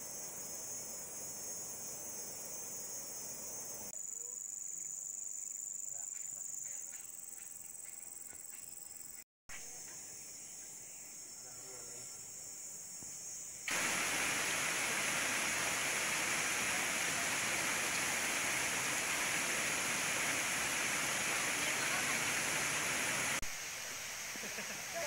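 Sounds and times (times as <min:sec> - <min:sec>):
insects trilling: 0:00.0 - 0:25.0
fast-flowing stream rushing: 0:13.7 - 0:23.4.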